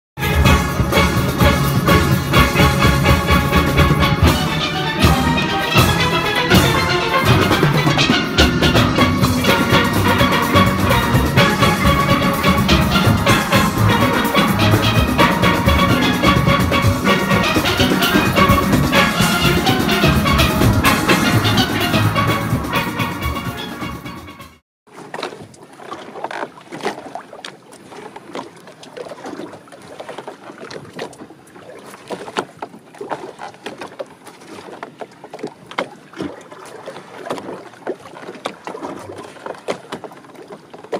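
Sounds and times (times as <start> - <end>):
background music with steady beat: 0.2 - 24.6.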